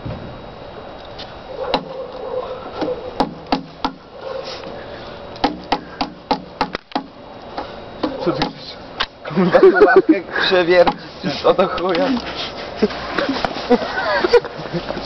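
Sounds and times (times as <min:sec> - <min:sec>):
knocks on wood: 0:02.8 - 0:04.0, 0:05.4 - 0:07.1, 0:08.0 - 0:08.6.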